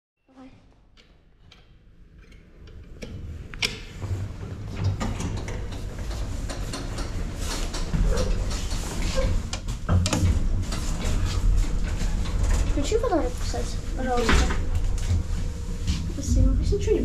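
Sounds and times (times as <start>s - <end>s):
lift mechanism clicking and knocking: 1.0s - 12.8s
lift humming: 3.2s - 17.0s.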